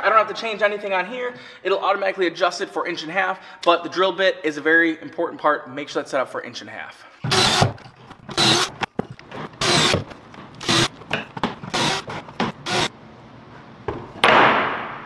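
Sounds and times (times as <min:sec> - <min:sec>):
cordless drill boring into wood: 0:07.3 - 0:08.9, 0:09.5 - 0:10.9, 0:11.7 - 0:12.9.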